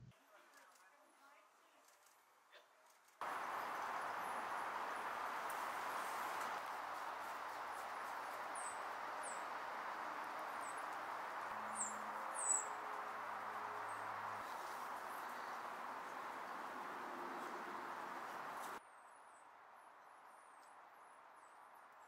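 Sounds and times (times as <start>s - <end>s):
steady background hiss: 3.2s - 18.8s.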